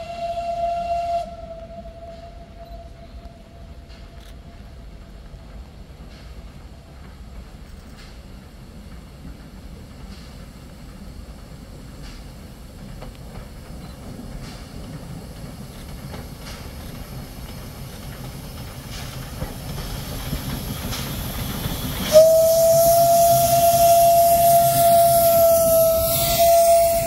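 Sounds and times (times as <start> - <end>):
steam whistle steady note: 0.0 - 3.7, 22.0 - 27.0
steam locomotive running rumble: 0.0 - 27.0
steam hissing: 4.0 - 27.0.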